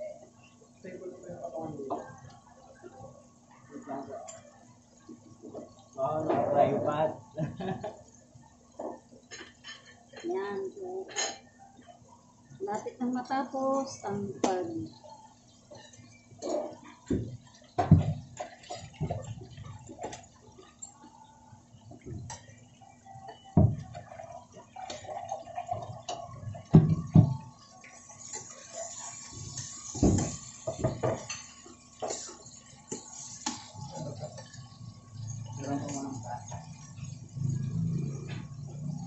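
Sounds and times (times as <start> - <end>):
hot oil sizzling: 0.0 - 39.0
metal tongs scraping frying pan: 27.9 - 34.7.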